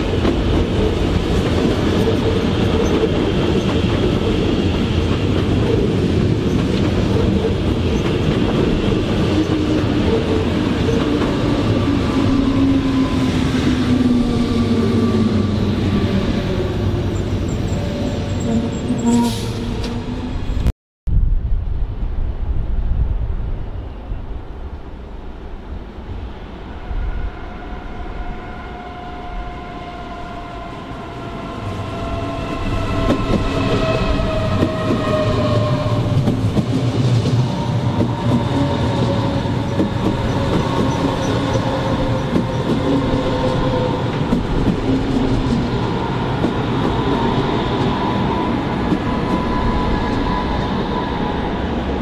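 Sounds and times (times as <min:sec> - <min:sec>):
train wheels on rails: 0:00.0 - 0:20.7, 0:30.4 - 0:52.0
electric train whine: 0:25.5 - 0:52.0.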